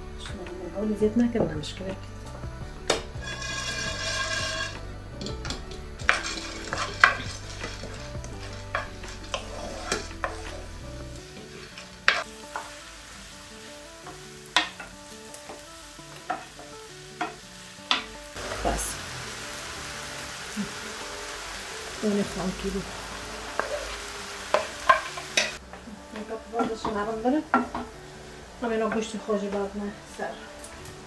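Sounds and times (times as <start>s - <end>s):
onions sizzling in a frying pan: 0.0s - 31.0s
wooden spoon knocking on pan: 2.9s - 10.5s, 14.1s - 14.9s, 24.5s - 27.9s.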